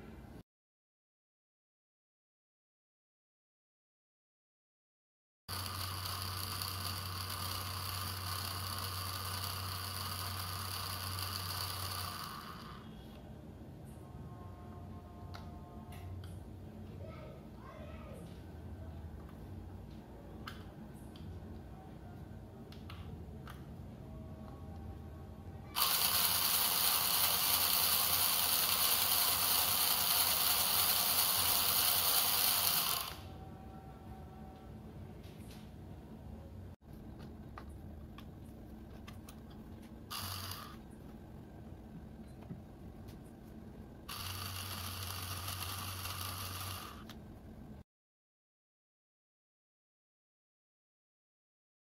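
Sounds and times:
small gearmotor whirring: 5.5s - 13.0s, 25.7s - 33.4s, 40.1s - 40.9s, 44.0s - 47.2s.

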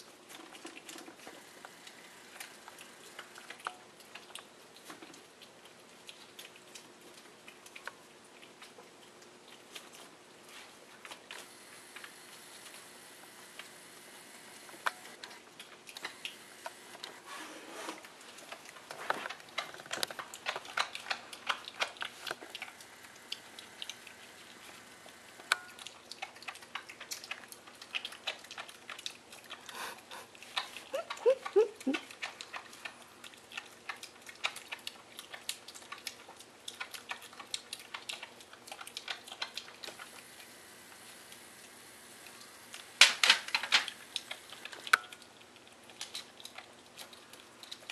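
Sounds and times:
piglet chewing and slurping: 0.0s - 47.9s
piglet squeaks: 30.9s - 32.0s.

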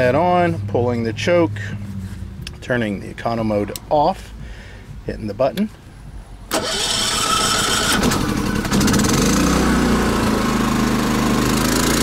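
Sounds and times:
portable generator running: 6.5s - 12.0s.

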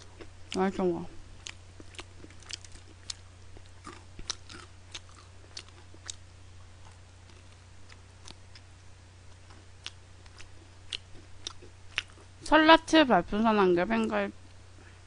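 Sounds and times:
steady low hum: 0.0s - 15.0s
chewing fried chicken: 1.4s - 12.4s.

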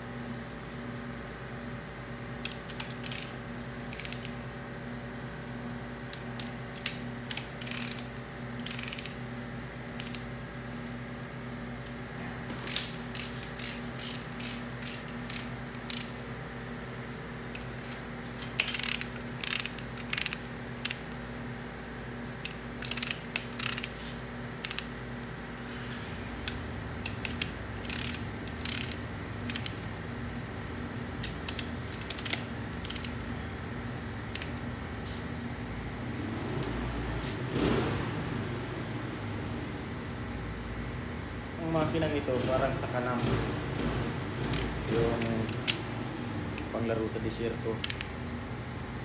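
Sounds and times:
steady low hum: 0.0s - 49.0s
ratchet wrench clicking: 2.4s - 4.4s, 6.4s - 9.2s, 9.9s - 10.3s, 12.7s - 16.2s, 18.6s - 21.0s, 22.4s - 24.0s, 24.6s - 24.9s, 27.0s - 29.8s, 31.2s - 33.2s, 34.3s - 34.6s, 43.8s - 45.8s, 47.8s - 48.1s.

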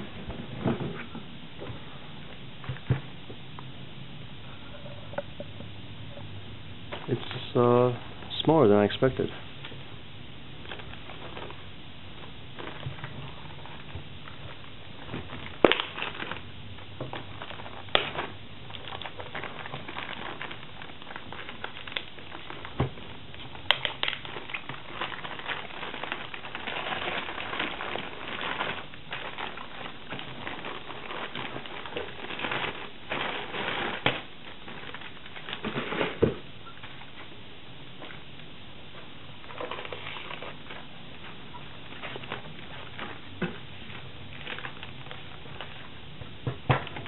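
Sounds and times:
plastic bag crinkling: 6.9s - 9.4s, 10.6s - 37.4s, 38.0s - 46.2s.

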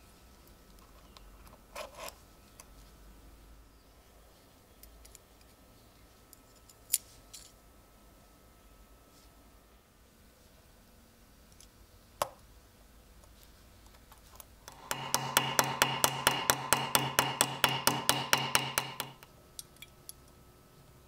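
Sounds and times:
hammer tapping steel pin: 14.7s - 19.2s.

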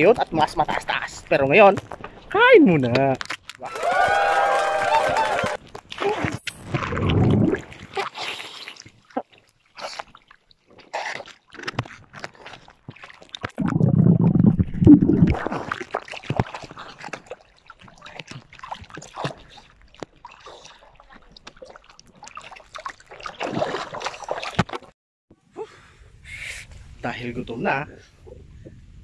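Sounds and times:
sea water splashing: 4.8s - 24.9s.

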